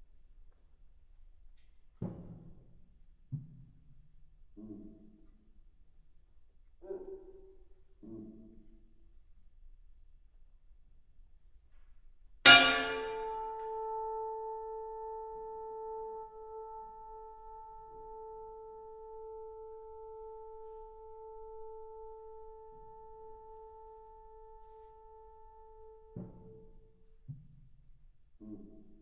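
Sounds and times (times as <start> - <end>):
bell-like metal percussion note: 12.5 - 14.5.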